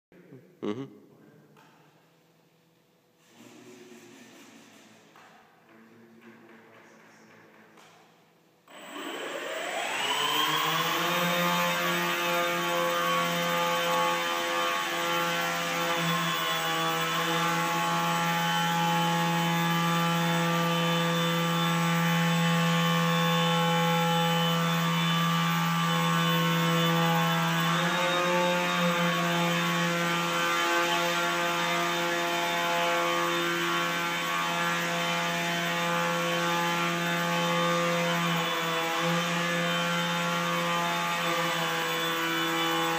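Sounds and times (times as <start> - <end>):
drone propellers whining: 8.7 - 11.2.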